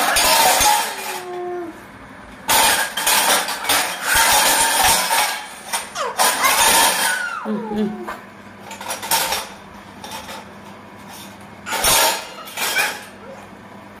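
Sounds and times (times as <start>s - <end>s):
steel bowls and tumblers clinking: 0.0s - 1.4s, 2.5s - 7.5s, 8.6s - 13.3s.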